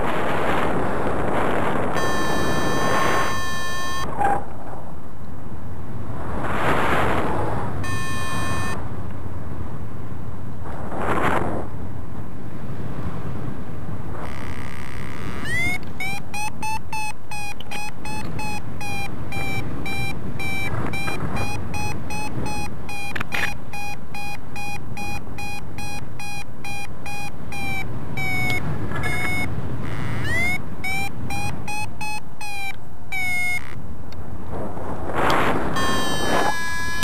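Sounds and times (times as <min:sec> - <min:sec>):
wind on microphone: 0:00.0 - 0:37.0
variometer short high beeps: 0:02.0 - 0:04.1, 0:07.8 - 0:08.8, 0:14.2 - 0:33.8, 0:35.8 - 0:37.0.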